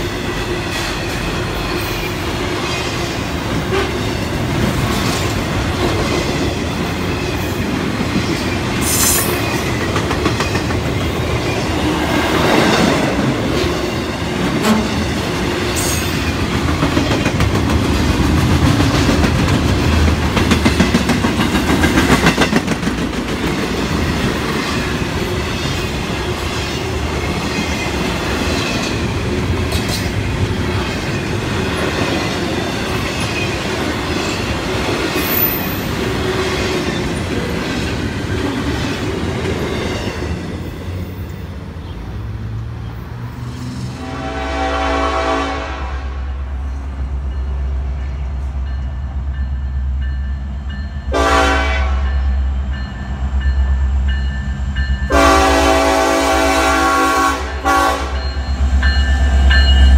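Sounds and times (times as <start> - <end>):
freight train rumbling past: 0.0 - 59.9.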